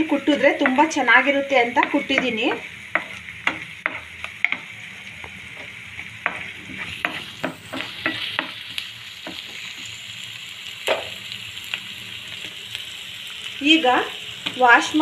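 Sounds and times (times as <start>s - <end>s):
onion sizzling in oil: 0.0s - 15.0s
spatula scraping and tapping pan: 0.2s - 9.6s.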